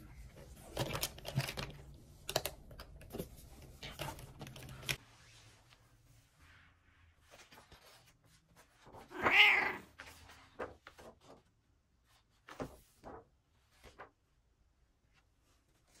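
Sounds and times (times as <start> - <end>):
paper pages turning: 7.2 - 11.5
cat meowing: 9.1 - 9.9.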